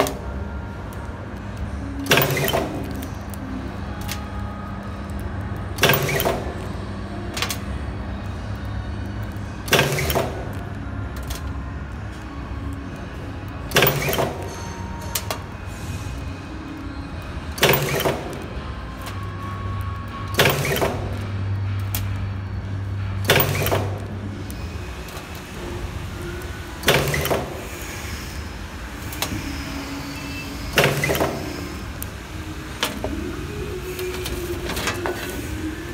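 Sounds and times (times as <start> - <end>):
machine humming: 0.0 - 35.9.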